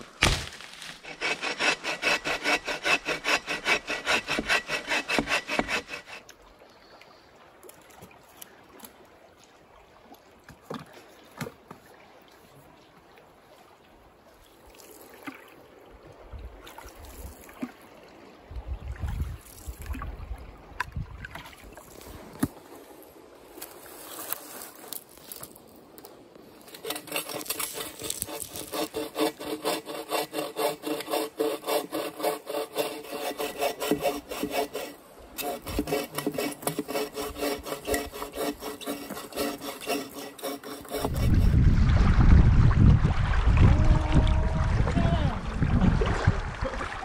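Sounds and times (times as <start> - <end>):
hand saw cutting wood: 0.0 - 6.3, 26.7 - 41.6.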